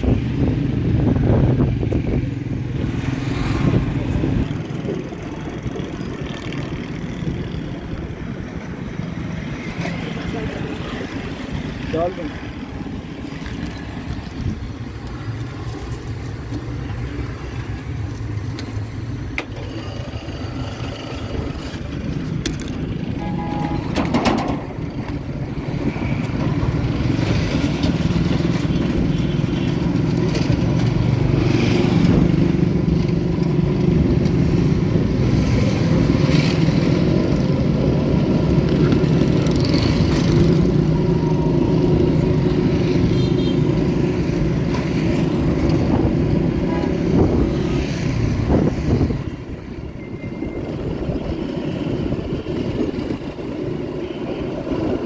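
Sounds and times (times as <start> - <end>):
street traffic rumble: 0.0 - 55.0.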